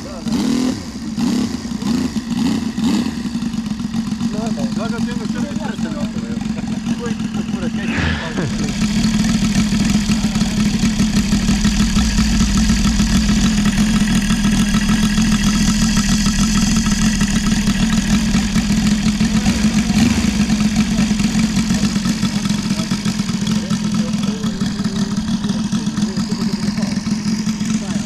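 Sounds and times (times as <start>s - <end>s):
model plane engine running: 8.8s - 28.0s.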